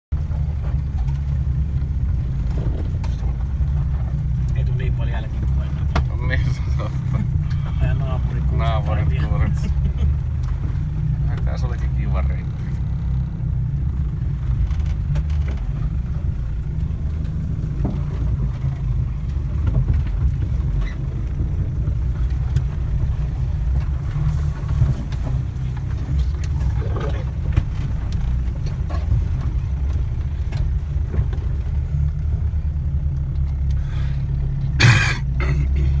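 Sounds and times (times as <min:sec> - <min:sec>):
vehicle engine low rumble: 0:00.1 - 0:36.0
faint clicks and knocks: 0:13.9 - 0:33.8.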